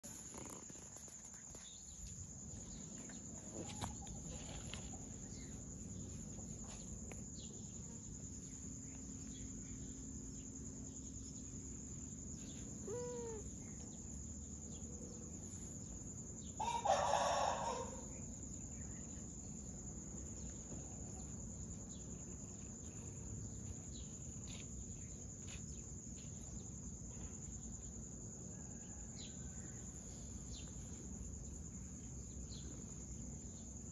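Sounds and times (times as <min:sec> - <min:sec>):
rooster crowing: 0:16.6 - 0:18.1.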